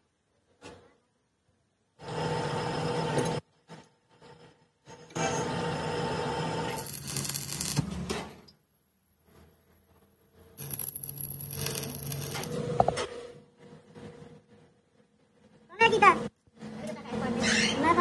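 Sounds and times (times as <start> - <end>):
arc welding crackle: 6.7 - 8.1, 10.6 - 12.6.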